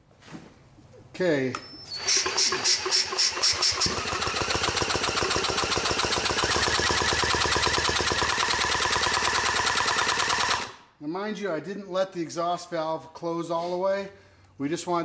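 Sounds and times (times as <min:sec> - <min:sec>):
power drill spinning: 0:01.7 - 0:10.7
engine chuffing air: 0:02.0 - 0:08.5.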